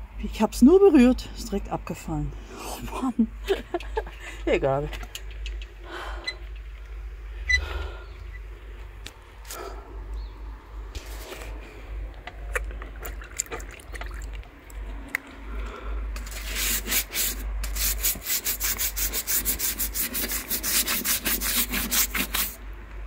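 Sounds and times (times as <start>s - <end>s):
brush scrubbing a plastic wall: 16.2s - 22.6s.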